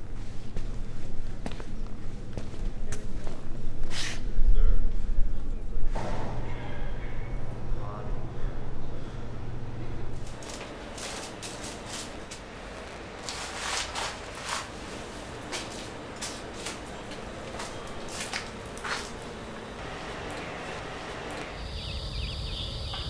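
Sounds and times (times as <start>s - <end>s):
low hum: 3.3s - 23.0s
footsteps crunching on debris: 10.2s - 21.6s.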